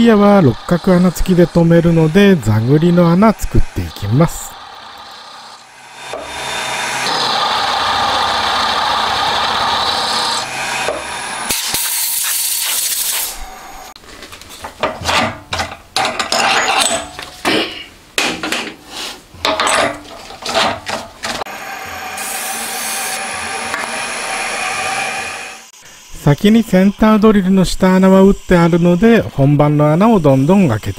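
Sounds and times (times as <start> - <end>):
milling machine grinding: 0.0 - 11.8, 20.0 - 25.7
drill cutting bursts: 0.0 - 14.0, 21.5 - 25.8
mist coolant hiss: 0.0 - 14.0, 21.9 - 30.9.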